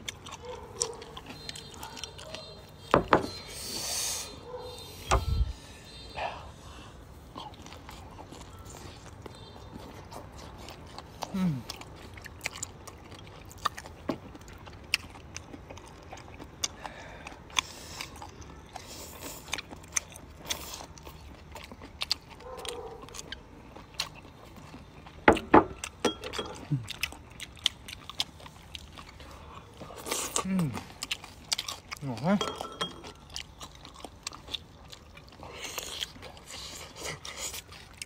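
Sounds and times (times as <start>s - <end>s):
crunching crispy food: 26.6s - 32.4s, 33.2s - 38.0s.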